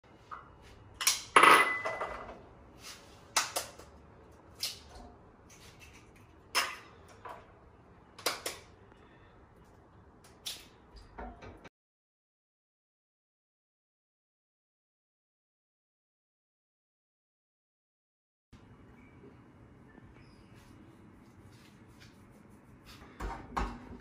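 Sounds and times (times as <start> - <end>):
cookware knocking and clinking: 1.4 - 2.3.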